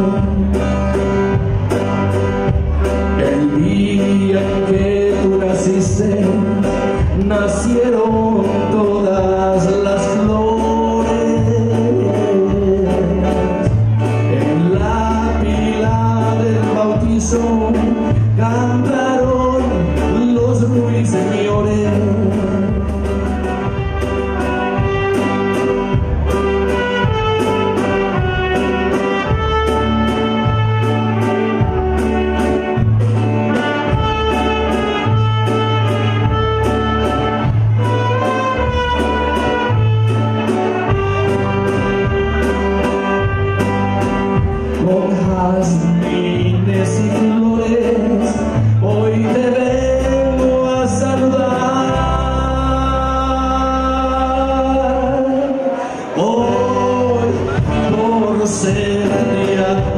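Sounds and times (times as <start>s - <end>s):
live band playing: 0.0s - 59.9s
walking bass line: 0.0s - 59.9s
drum beat: 22.8s - 45.5s
saxophones playing melody: 23.4s - 44.8s.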